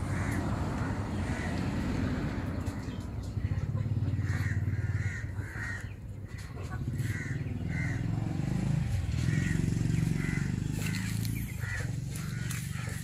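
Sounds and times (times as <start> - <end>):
harsh animal calls: 3.4 - 13.0.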